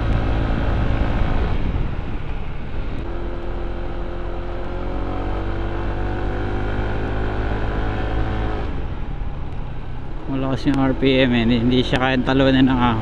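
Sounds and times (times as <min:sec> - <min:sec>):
low rumble: 0:00.0 - 0:04.8.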